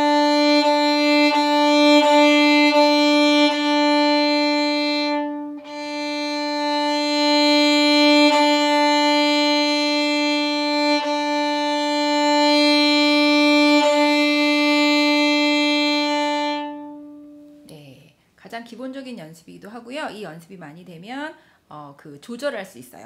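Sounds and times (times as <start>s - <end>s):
violin playing long bowed notes: 0.0s - 17.6s.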